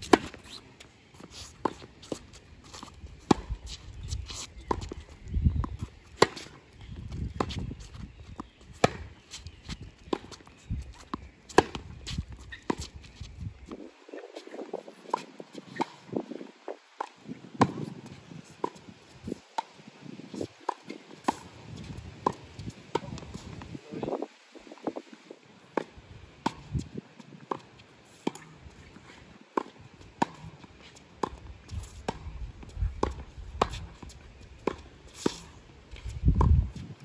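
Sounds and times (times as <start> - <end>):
footsteps on court: 0.0 - 16.4, 20.4 - 23.8
rackets striking tennis ball: 8.3 - 13.0.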